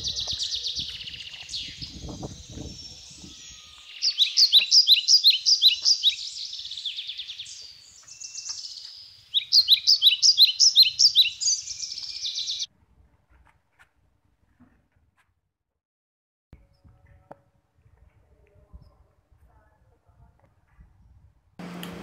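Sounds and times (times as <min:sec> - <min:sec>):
bird chirping high-pitched: 0:00.0 - 0:12.7.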